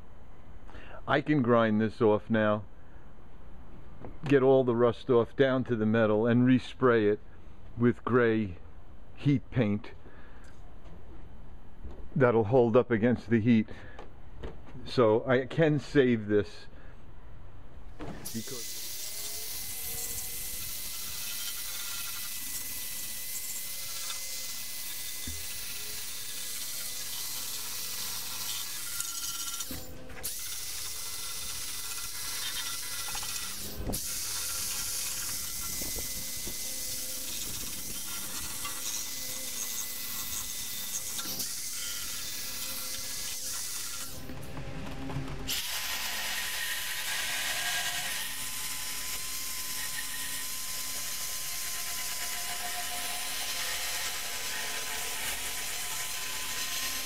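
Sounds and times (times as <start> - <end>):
rotary tool grinding rusted metal: 18.3 - 57.0.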